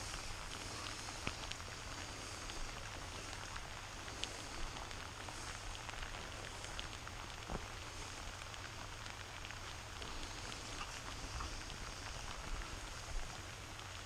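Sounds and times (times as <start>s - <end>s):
heavy rain: 0.0s - 14.0s
sharp raindrop ticks: 0.0s - 14.0s.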